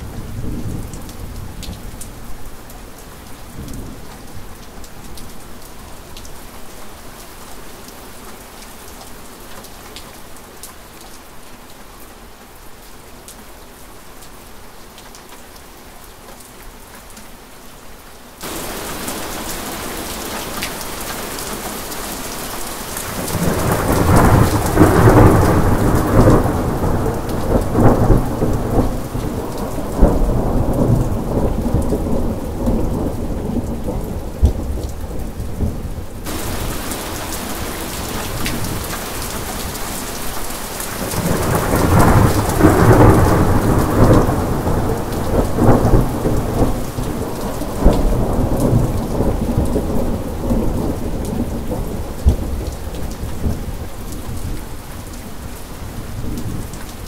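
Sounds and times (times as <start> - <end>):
steady rain: 0.0 - 57.0
thunder rolling: 23.1 - 34.7, 36.3 - 38.9.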